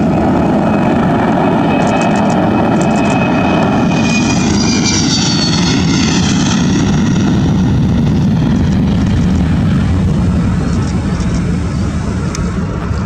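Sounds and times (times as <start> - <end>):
high whining tones: 0.0 - 9.2
jet engines roaring at takeoff: 0.0 - 13.0.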